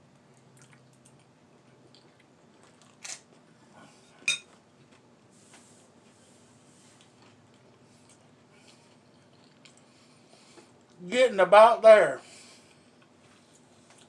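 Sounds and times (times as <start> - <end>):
quiet chewing: 0.1 - 5.6, 6.8 - 11.0, 12.6 - 14.0.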